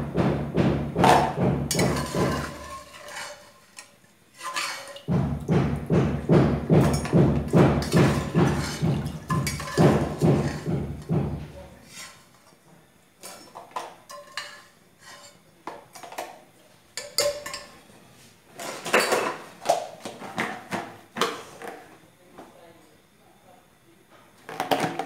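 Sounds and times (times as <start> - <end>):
metal spoon clinking on pot: 1.7 - 5.1, 6.8 - 10.7, 13.2 - 15.3, 17.0 - 17.8.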